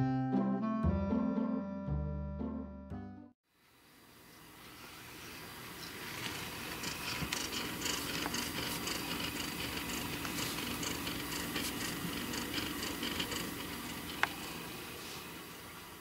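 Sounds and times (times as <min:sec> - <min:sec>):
cat purring: 0:06.2 - 0:14.7.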